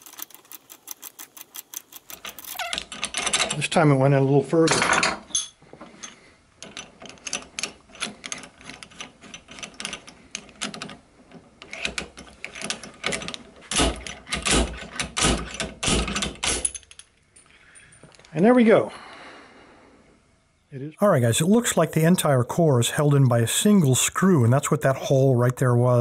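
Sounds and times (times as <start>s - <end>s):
lock core popping out: 0.0s - 3.6s, 6.6s - 17.2s
metal clicks and scrapes: 0.0s - 3.8s, 6.0s - 17.1s.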